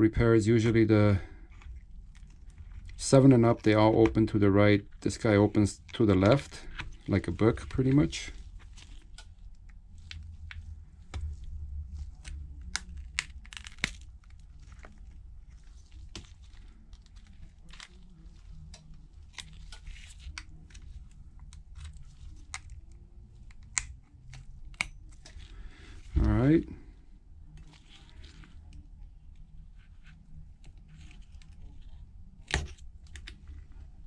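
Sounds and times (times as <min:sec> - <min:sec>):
crinkly scraping: 0:06.6 - 0:23.4, 0:27.5 - 0:28.9.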